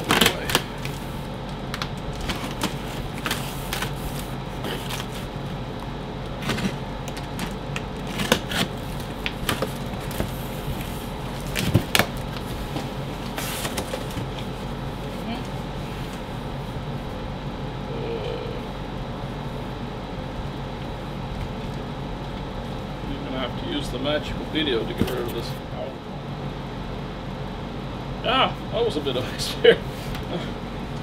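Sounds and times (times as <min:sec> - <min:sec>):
steady low hum: 0:00.0 - 0:31.0
cardboard flaps scraping and rustling: 0:02.1 - 0:05.4, 0:06.4 - 0:15.1.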